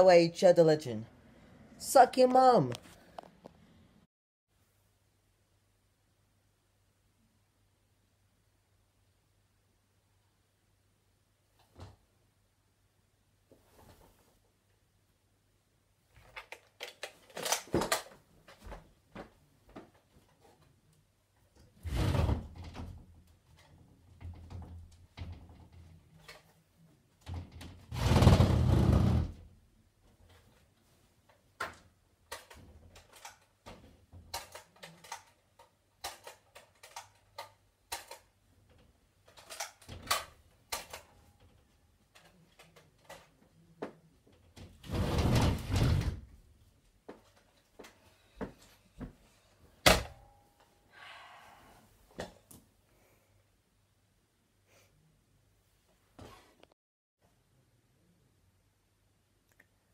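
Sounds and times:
clicks and knocks of handling: 31.3s - 44.7s.

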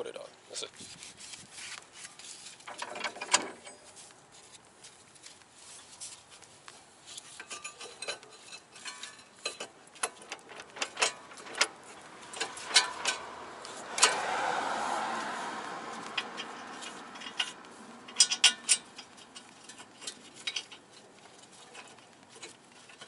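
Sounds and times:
metallic clicks of brake parts: 7.4s - 14.2s, 15.9s - 23.0s.

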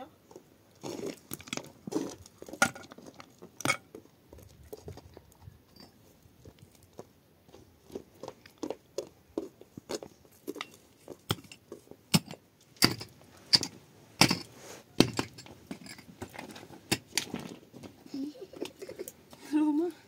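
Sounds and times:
sharp knocks and clatter: 10.5s - 17.6s.

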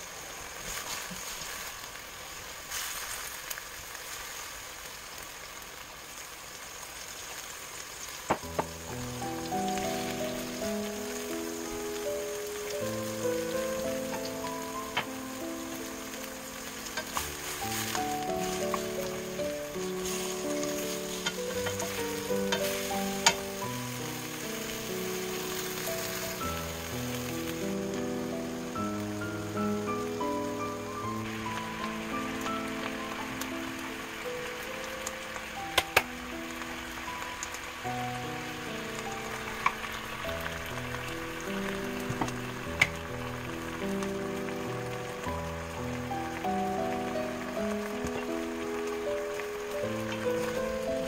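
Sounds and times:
food sizzling in a wok: 0.0s - 51.0s
wooden spoons knocking on pan: 8.3s - 8.8s, 21.2s - 23.5s
light plucked background music: 8.4s - 51.0s.

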